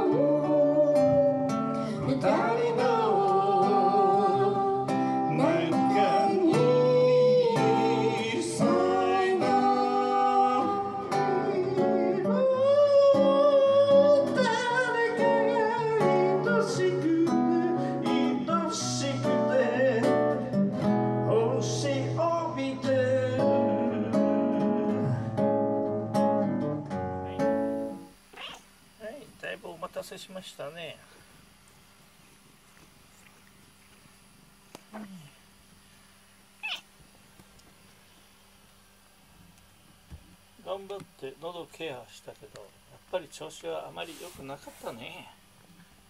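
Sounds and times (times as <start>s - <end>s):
man singing hoarsely: 0.0s - 20.5s
strummed acoustic guitar: 0.0s - 28.1s.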